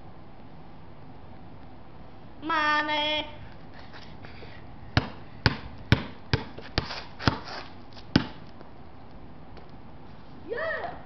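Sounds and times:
basketball bouncing: 5.0s - 8.5s.

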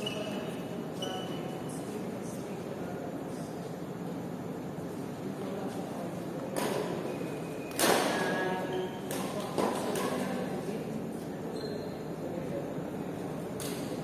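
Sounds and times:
racket hitting shuttlecock: 7.7s - 8.3s.

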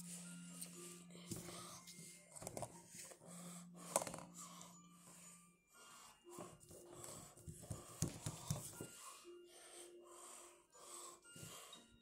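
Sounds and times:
breathing through the nose: 3.2s - 12.0s.

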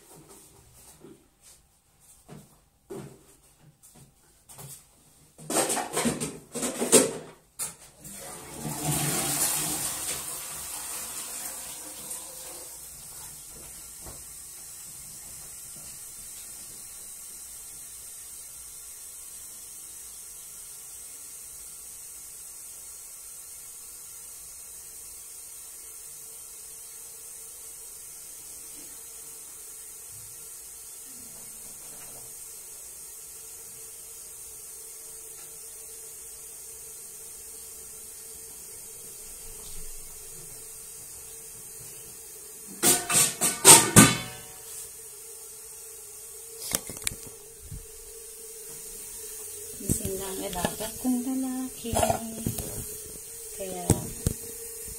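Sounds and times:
steady hiss: 10.0s - 54.9s
faint steady hum: 23.1s - 54.9s.

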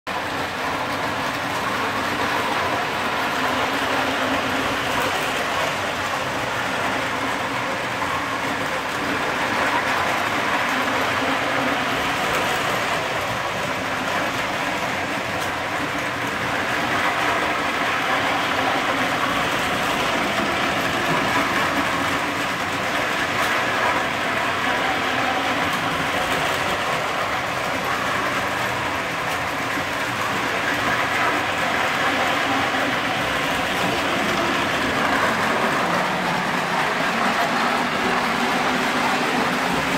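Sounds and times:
wheels rolling over rails: 0.1s - 39.9s.

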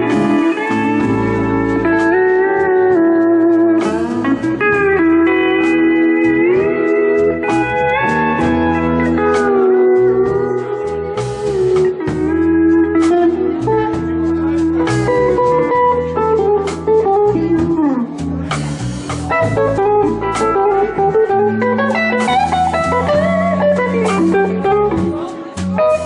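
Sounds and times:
bass: 0.0s - 26.0s
drums: 0.0s - 26.0s
slide guitar lead: 0.0s - 26.0s.

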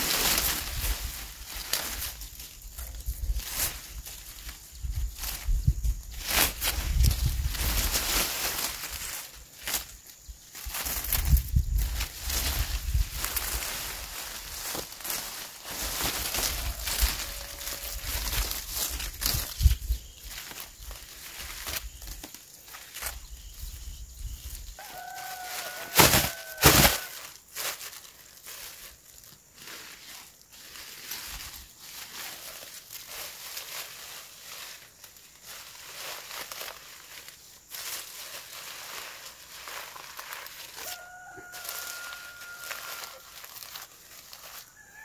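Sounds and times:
rustle of leafy vines: 0.0s - 45.0s
rooster crowing: 16.3s - 18.4s, 24.8s - 27.2s, 40.4s - 45.0s
plastic bag flapping: 25.6s - 27.2s.

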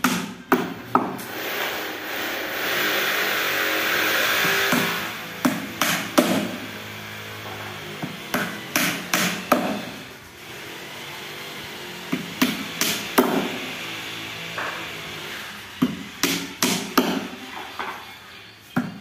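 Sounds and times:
hammer driving nails into wood: 4.4s - 6.6s, 7.4s - 9.9s, 12.1s - 13.6s, 15.8s - 17.3s.

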